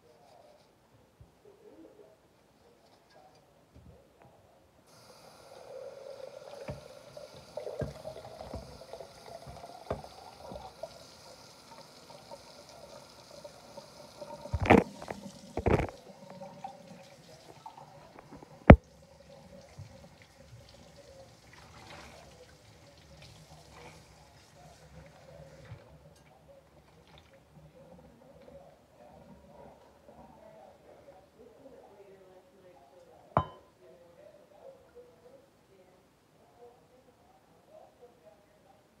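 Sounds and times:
water running into a sink: 0:04.9 - 0:25.7.

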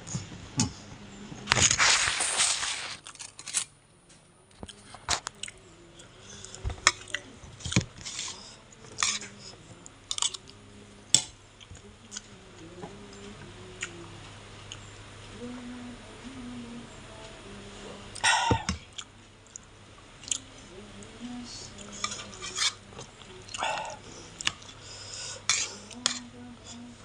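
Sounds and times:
loud rustle: 0:01.5 - 0:03.6.

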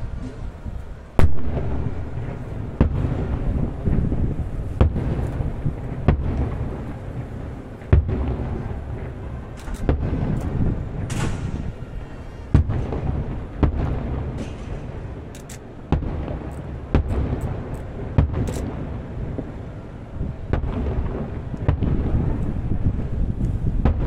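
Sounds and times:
low rumble of distant bursts: 0:00.0 - 0:24.0
firework shells bursting: 0:01.2 - 0:19.5.

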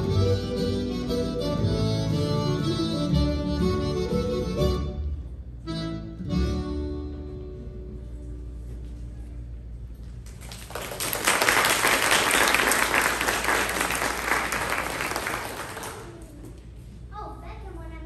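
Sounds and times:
audience applauding: 0:10.2 - 0:16.4.

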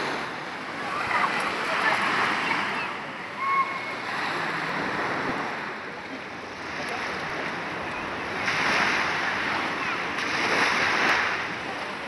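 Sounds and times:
waves washing onto pebble beach: 0:06.6 - 0:12.0.

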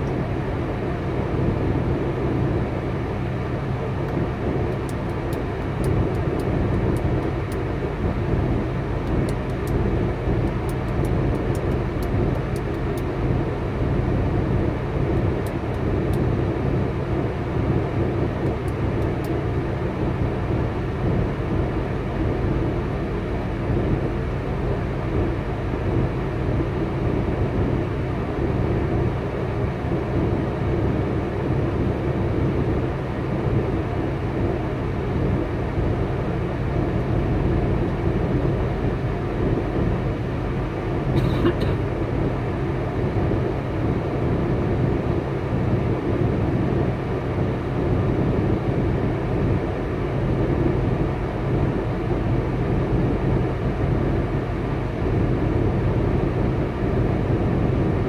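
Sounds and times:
diesel truck engine idling: 0:32.8 - 0:45.2.

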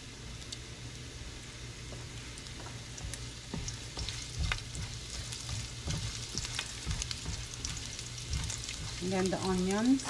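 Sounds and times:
ginger sizzling in hot oil: 0:02.2 - 0:10.0
spatula knocking in pan: 0:03.0 - 0:10.0.

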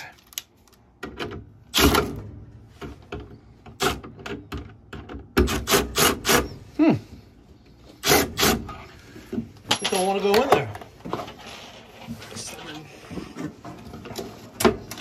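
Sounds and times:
knocks and scrapes of metal parts: 0:08.7 - 0:12.4.

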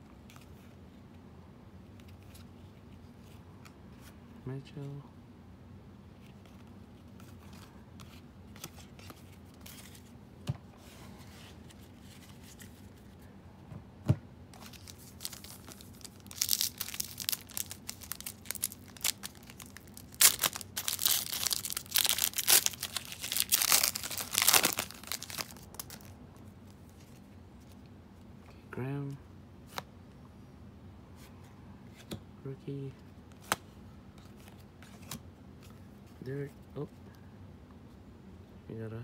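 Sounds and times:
foil wrapper tearing and crinkling: 0:14.6 - 0:26.2
cards being shuffled: 0:14.6 - 0:27.8, 0:34.2 - 0:35.8.

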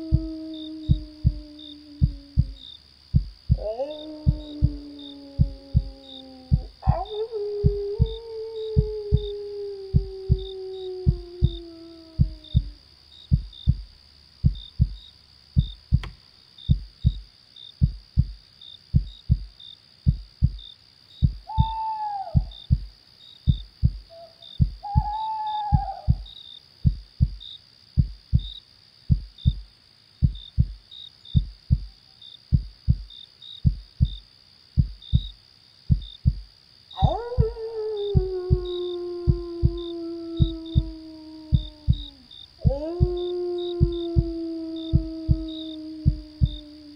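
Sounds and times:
wolf howl: 0:00.0 - 0:02.6, 0:03.5 - 0:12.8, 0:21.5 - 0:22.6, 0:24.1 - 0:26.3, 0:37.0 - 0:46.9
heartbeat: 0:00.0 - 0:16.1, 0:16.7 - 0:17.2, 0:17.8 - 0:22.9, 0:23.5 - 0:27.4, 0:28.0 - 0:30.8, 0:31.4 - 0:31.9, 0:32.5 - 0:34.2, 0:34.8 - 0:46.9
crickets chirping: 0:00.0 - 0:46.9
owl calling: 0:21.5 - 0:22.6, 0:24.2 - 0:26.3.

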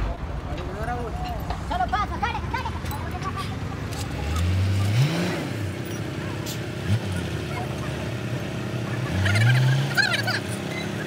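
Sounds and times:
vehicle engine revving: 0:03.7 - 0:11.0.

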